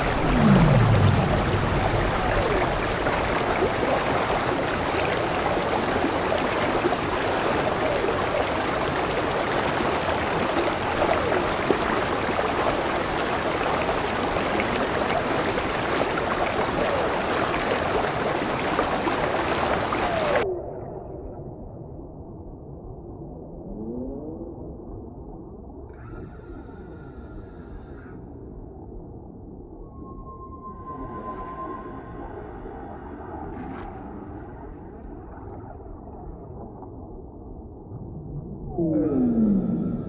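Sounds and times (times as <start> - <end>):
heavy rain splashing on water: 0.0 - 20.4.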